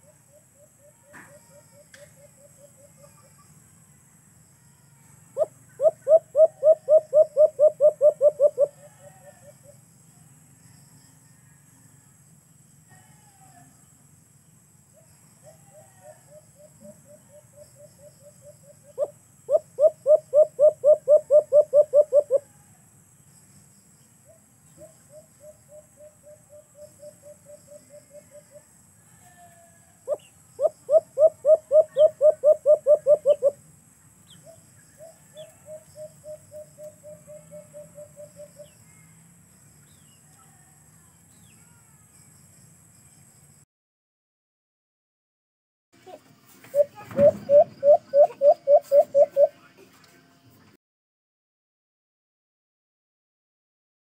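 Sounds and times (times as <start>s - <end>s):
dove cooing: 5.4s - 9.5s, 15.4s - 22.4s, 30.1s - 33.6s, 46.7s - 49.6s.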